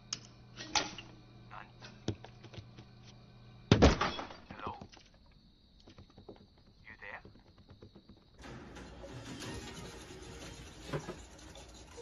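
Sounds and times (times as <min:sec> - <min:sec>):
low steady hum: 0:00.0 - 0:04.7.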